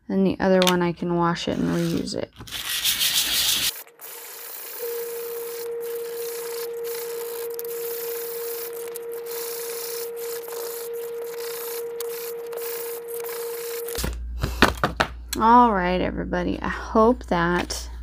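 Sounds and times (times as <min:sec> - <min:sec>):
hands rubbing paper: 0:01.5 - 0:14.0
faint steady hum: 0:03.8 - 0:18.0.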